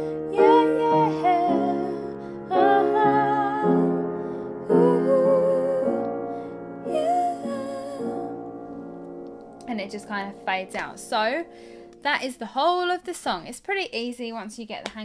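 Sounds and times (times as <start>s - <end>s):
piano chords ringing: 0.0s - 12.4s
woman singing with vibrato: 0.2s - 6.1s, 6.8s - 8.5s.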